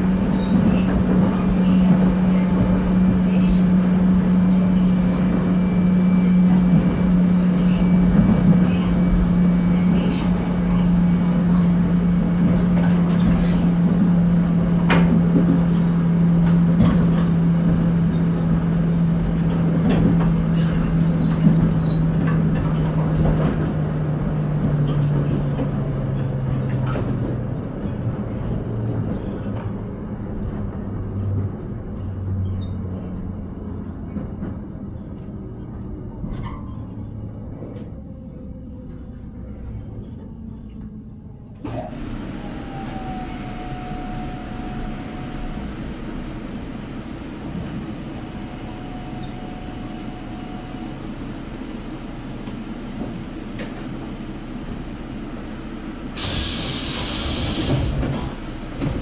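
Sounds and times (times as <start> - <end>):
train running noise: 0.0 - 59.0
train motor hum: 37.2 - 59.0.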